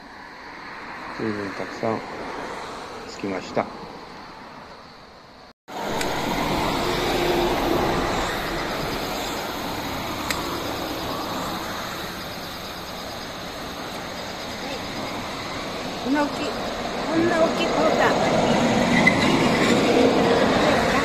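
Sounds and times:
rushing background noise: 0.0 - 21.0.

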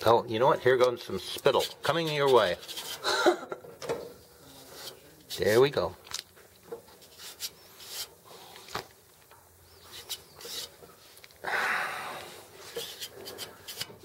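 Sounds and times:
hand rubbing metal plate: 9.8 - 10.8, 12.6 - 14.0.

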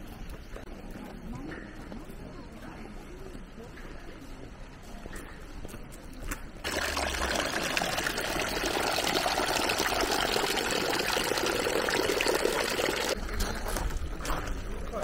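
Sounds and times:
water trickling onto pebbles: 6.6 - 13.2.

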